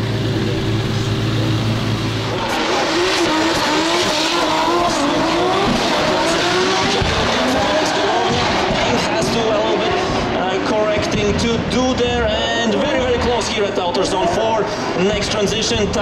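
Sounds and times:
car engines revving: 0.0s - 16.0s
tire squeal: 2.1s - 10.6s.

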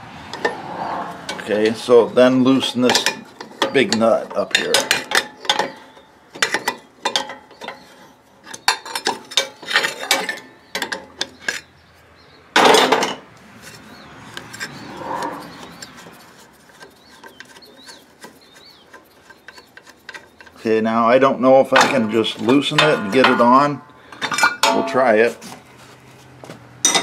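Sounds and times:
metal clatter: 2.6s - 11.7s, 21.7s - 25.2s
rubbing and handling sounds: 13.5s - 20.7s, 24.3s - 26.6s.

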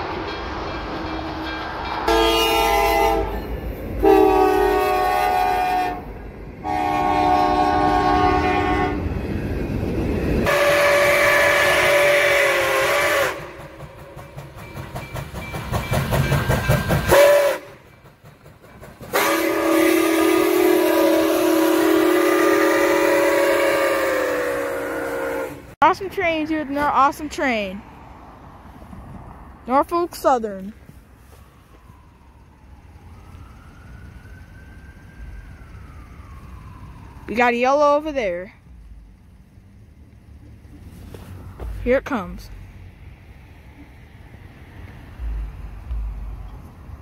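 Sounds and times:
passing train clatter: 0.0s - 47.0s
diesel locomotive horn blasts: 2.0s - 9.2s, 10.4s - 13.8s, 17.1s - 17.9s, 19.1s - 25.8s
steam locomotive whistle blasts: 2.1s - 9.0s, 10.4s - 13.7s, 17.1s - 17.8s, 19.1s - 25.8s.

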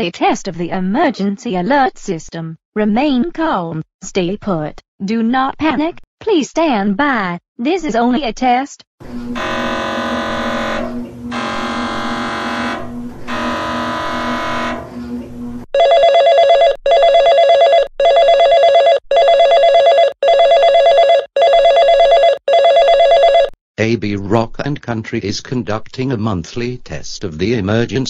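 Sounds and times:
long buzzy alert tones: 9.0s - 23.5s
pulsing alert tone: 9.1s - 23.4s.

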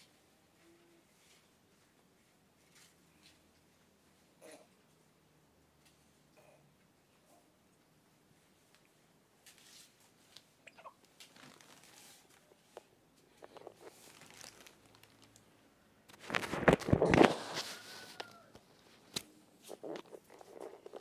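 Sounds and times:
plastic rustling and crinkling: 9.4s - 21.0s.

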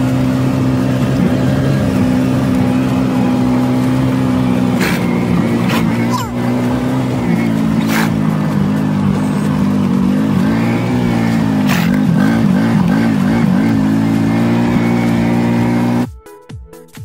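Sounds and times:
utility vehicle engine running: 0.0s - 16.1s
music: 3.0s - 17.0s.

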